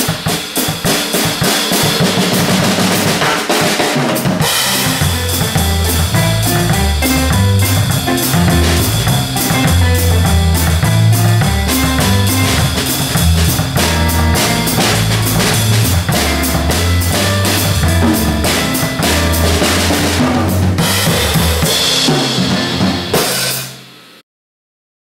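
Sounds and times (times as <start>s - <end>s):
jazz drum kit played with sticks: 0.0s - 23.9s
backing track with bass line: 4.4s - 23.2s.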